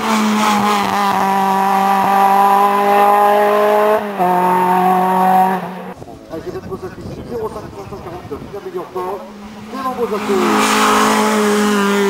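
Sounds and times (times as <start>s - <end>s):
car engine at high revs: 0.0s - 6.0s, 8.8s - 12.0s.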